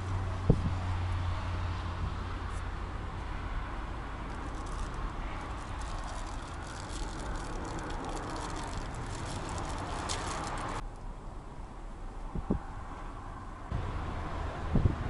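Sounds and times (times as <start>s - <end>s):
wind buffeting microphone: 0.0s - 1.2s, 12.3s - 12.8s, 14.5s - 15.0s.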